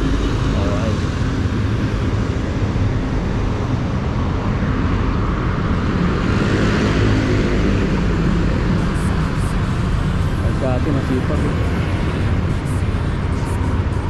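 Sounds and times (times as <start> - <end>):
wind rushing over microphone: 0.0 - 14.0
motor scooter engine running: 8.6 - 14.0.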